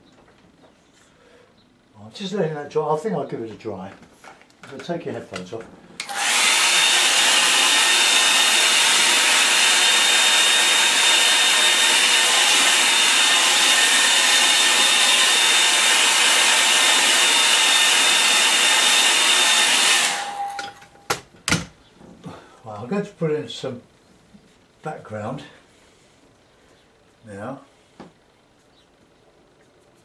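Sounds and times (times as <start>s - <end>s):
hair dryer blowing: 6.0s - 20.8s.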